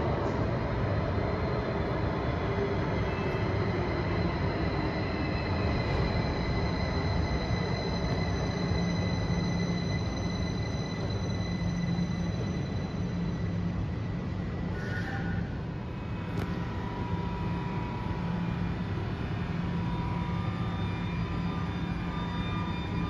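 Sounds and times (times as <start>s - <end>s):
train low rumble: 0.0s - 23.0s
high wheel squeal: 2.9s - 14.0s, 14.6s - 15.6s, 17.1s - 23.0s.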